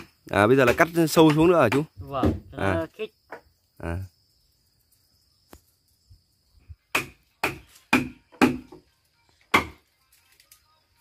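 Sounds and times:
chisel striking timber: 0.0s - 2.5s, 6.9s - 8.8s, 9.5s - 9.8s.

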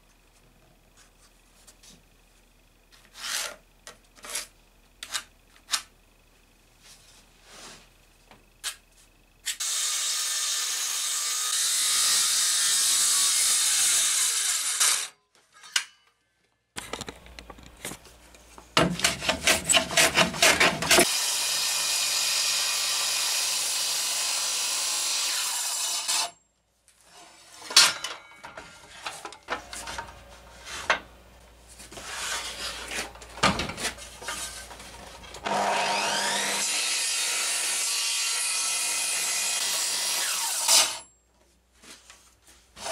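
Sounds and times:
beam saw cutting wood: 9.6s - 15.1s, 19.0s - 26.3s, 35.4s - 41.0s
handling knocks and clicks: 16.8s - 19.3s
saw motor whine: 35.4s - 41.1s.

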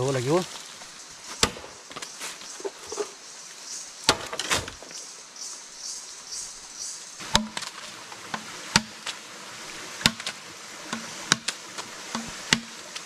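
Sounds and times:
blade chopping into wood: 8.7s - 9.0s, 10.0s - 12.8s.

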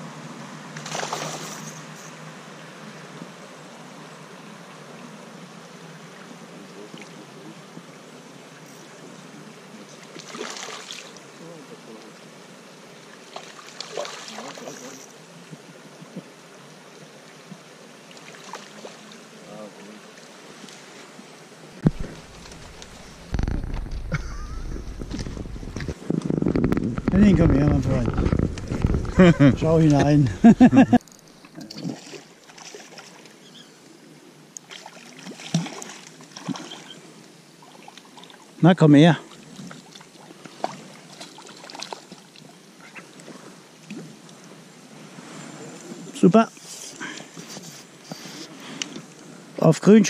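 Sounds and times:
steady background hiss: 0.0s - 50.0s
fish splashing in water: 0.8s - 1.6s, 10.1s - 11.1s, 13.3s - 14.9s, 34.6s - 37.0s, 39.6s - 42.3s.

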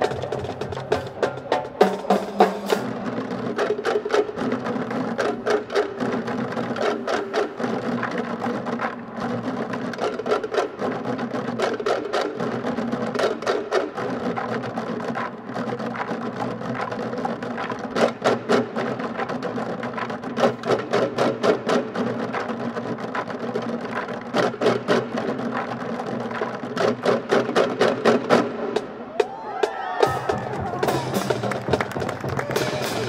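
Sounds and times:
marching band held chord: 30.1s - 33.0s.

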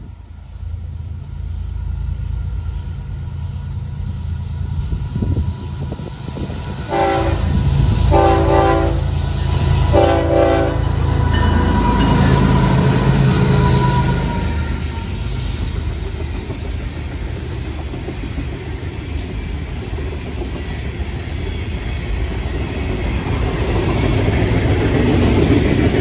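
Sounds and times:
locomotive engine rumble: 0.0s - 26.0s
locomotive air horn blasts: 6.8s - 14.9s.

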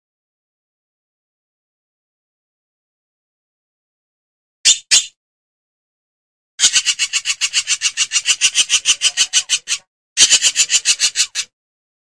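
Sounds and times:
hornbill rasping calls: 6.6s - 11.5s.

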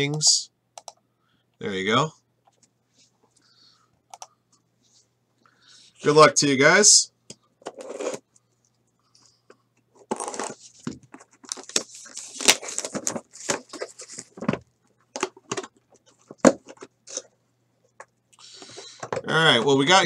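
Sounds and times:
plastic wrap crinkling: 11.4s - 14.5s.

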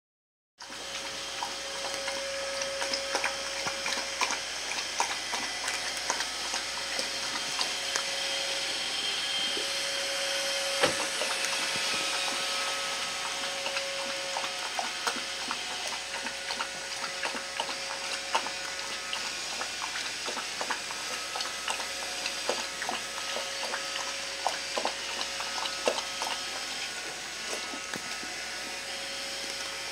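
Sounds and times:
kitten crunching kibble: 24.8s - 29.8s.

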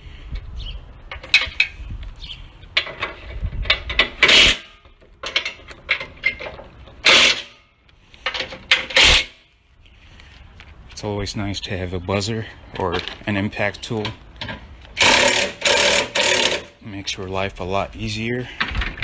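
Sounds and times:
ratchet wrench clicking: 15.0s - 16.7s.

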